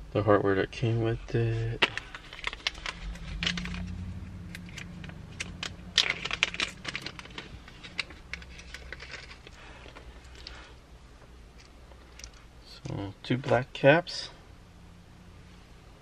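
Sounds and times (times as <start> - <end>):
low steady hum: 0.0 - 16.0
plastic bag crinkle: 1.9 - 10.6
plastic clips rattling in bag: 4.6 - 10.4.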